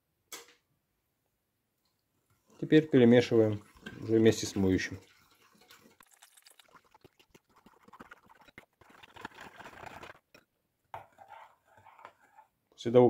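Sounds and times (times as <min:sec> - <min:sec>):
spoon stirring liquid in glass bowl: 0:02.5 - 0:12.6.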